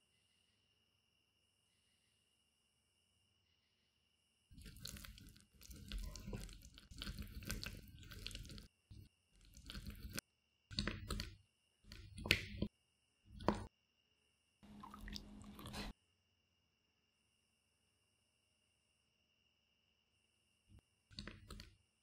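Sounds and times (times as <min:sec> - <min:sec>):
spatula stirring melted chocolate: 0:04.5 - 0:12.7.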